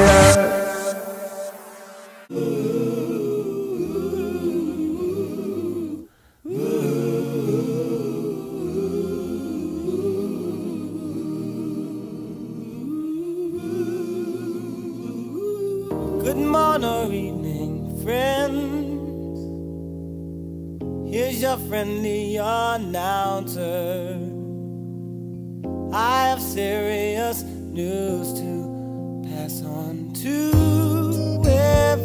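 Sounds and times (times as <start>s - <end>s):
voices humming in harmony: 0.0s - 17.3s.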